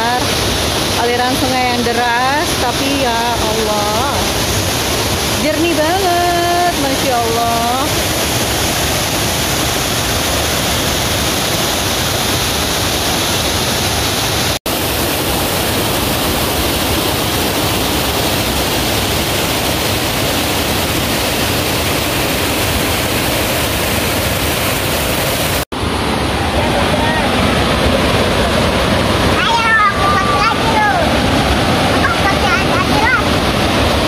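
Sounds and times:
river rushing over rocks: 0.0s - 34.0s.

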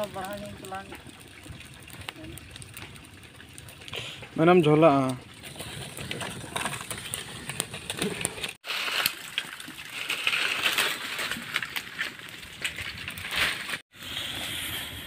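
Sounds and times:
leaf fire crackling: 0.0s - 15.0s
dry leaves crunching: 8.4s - 13.8s.

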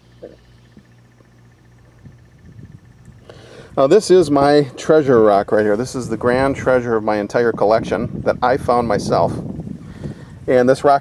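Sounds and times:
fast pulsing high tone: 0.0s - 9.8s
steady low hum: 0.0s - 11.0s.

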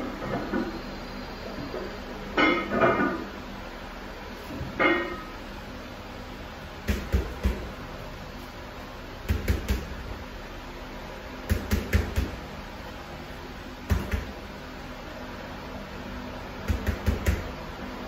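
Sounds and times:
gloved punches on heavy bag: 6.8s - 7.7s, 9.3s - 10.0s, 11.5s - 12.4s, 13.9s - 14.4s, 16.6s - 17.6s.

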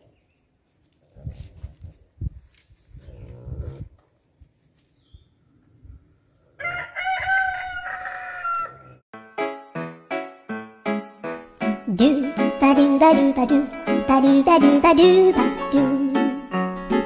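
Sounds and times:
high-pitched farm animal call: 6.6s - 9.0s.

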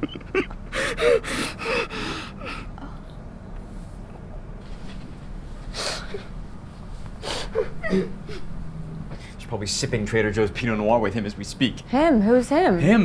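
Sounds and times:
man sobbing: 0.0s - 2.8s, 7.2s - 8.5s
sniffling breath: 0.7s - 3.0s, 5.7s - 6.4s, 7.2s - 8.5s.

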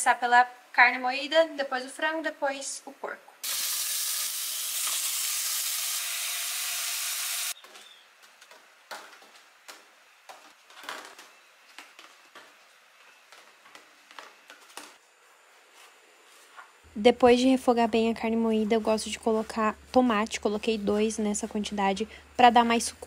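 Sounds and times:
meat sizzling in hot pan: 3.4s - 7.6s.

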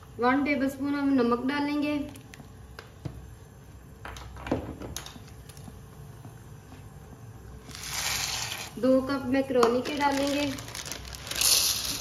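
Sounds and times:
pasta pouring into boiling water: 7.7s - 8.8s, 9.8s - 12.0s
water boiling and bubbling: 10.1s - 12.0s.

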